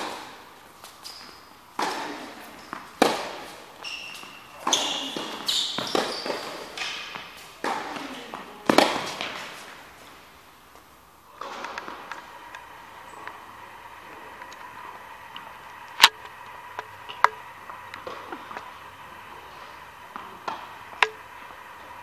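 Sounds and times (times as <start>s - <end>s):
short high squeaks: 1.0s - 1.6s, 3.8s - 6.8s
ball bouncing on indoor court: 1.0s - 9.8s, 10.7s - 13.4s, 16.0s - 18.8s, 20.1s - 21.4s
tennis ball struck by rackets: 1.7s - 10.1s, 11.3s - 14.9s, 15.6s - 21.6s.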